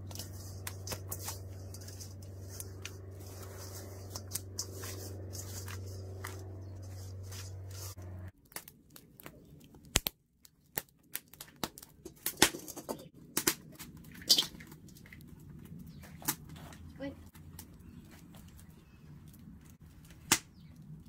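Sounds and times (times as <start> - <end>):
fish rubbing in metal bowl: 0.0 - 8.2
low hum: 0.0 - 8.4
wood fire crackling and popping: 0.0 - 21.0.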